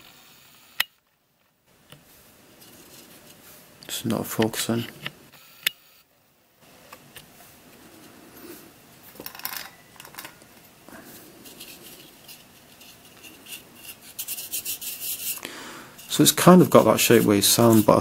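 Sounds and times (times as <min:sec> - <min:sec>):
plastic parts rubbing: 0:11.0 - 0:18.0.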